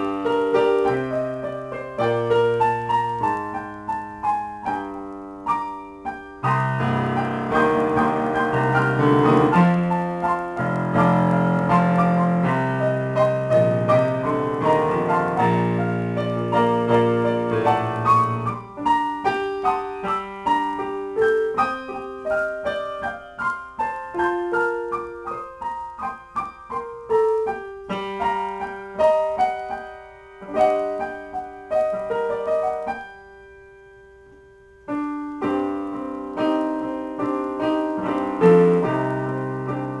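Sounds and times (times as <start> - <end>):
digital piano improvisation: 0.0 - 40.0.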